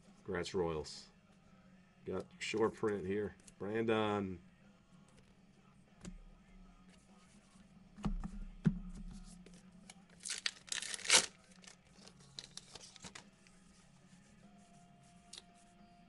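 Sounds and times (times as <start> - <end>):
cards crinkling and clicking: 10.1 - 13.3
wrapper tearing: 10.2 - 13.2.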